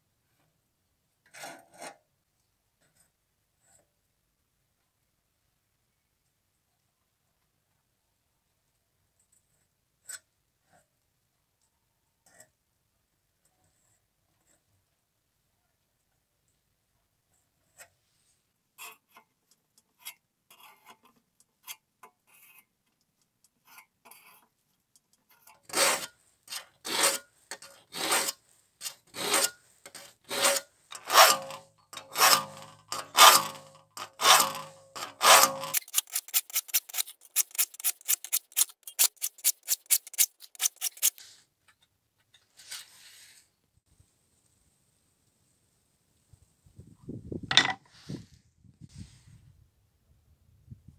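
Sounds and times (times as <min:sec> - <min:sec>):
file sharpening saw teeth: 0:25.4 - 0:41.3.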